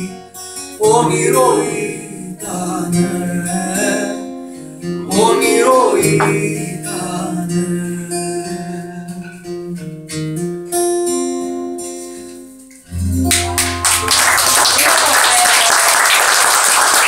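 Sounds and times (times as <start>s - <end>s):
acoustic guitar: 0.0s - 14.5s
clapping and applause: 13.3s - 17.0s.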